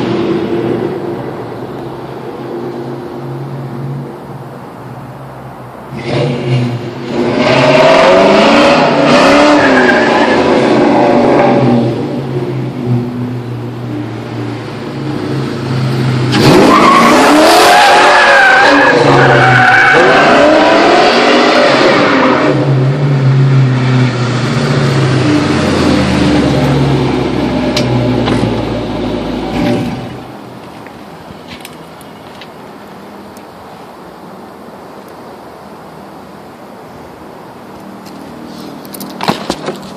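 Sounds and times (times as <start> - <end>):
tires squealing: 5.9 - 12.0, 15.6 - 22.8
car engine revving: 5.9 - 13.2, 14.1 - 30.3.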